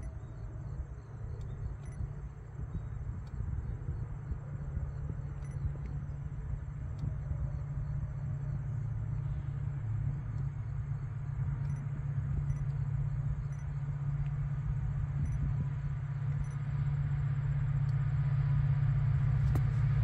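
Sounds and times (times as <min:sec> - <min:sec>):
diesel locomotive engine drone: 0:00.0 - 0:20.0.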